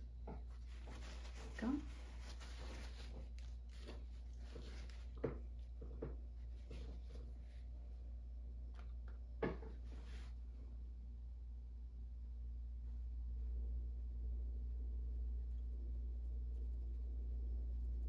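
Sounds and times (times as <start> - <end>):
low steady hum: 0.0 - 18.0
paintbrush scratching on canvas: 0.4 - 7.7, 15.3 - 18.0.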